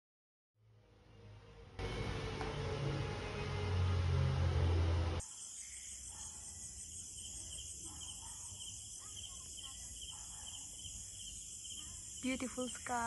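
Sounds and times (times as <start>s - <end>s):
crickets chirping: 5.2s - 13.0s.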